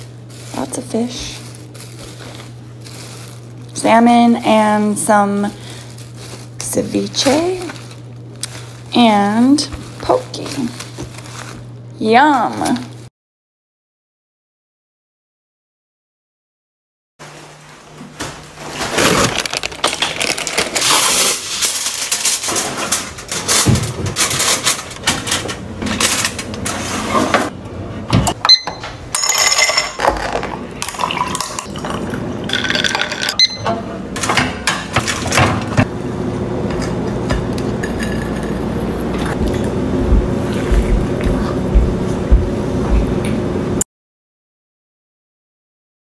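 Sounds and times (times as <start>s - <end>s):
groceries handled on counter: 0.0s - 11.7s, 18.2s - 25.0s
glass jar clinking: 28.5s - 30.0s, 37.8s - 39.2s.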